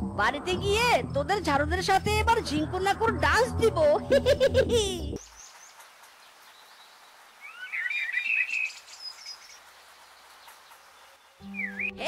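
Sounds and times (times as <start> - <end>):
faint outdoor hiss: 4.2 - 12.0
birds chirping: 5.2 - 12.0.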